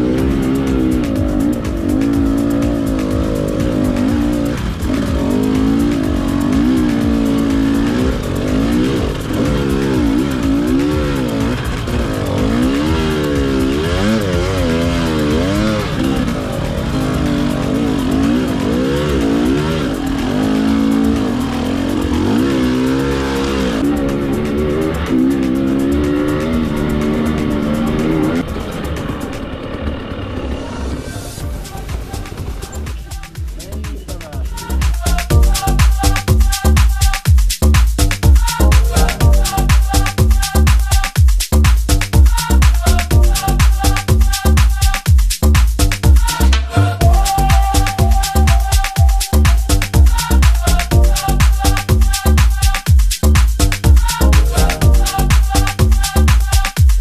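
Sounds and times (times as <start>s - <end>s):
dirt bike engine revving: 0.0s - 37.1s, 53.4s - 56.8s.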